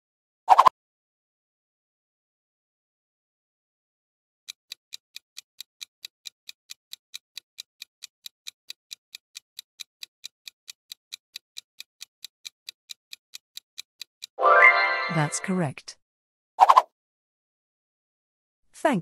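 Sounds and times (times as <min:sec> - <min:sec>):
clock ticking: 0:04.5 - 0:14.4.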